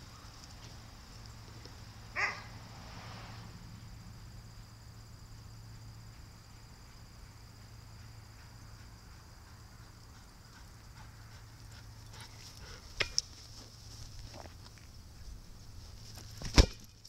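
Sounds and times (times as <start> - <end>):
steady low hum: 0.0 - 17.0
dog barking: 2.2 - 2.5.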